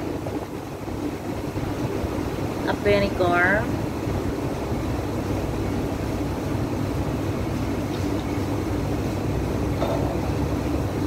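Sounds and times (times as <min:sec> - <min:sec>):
low background rumble: 0:00.0 - 0:11.0.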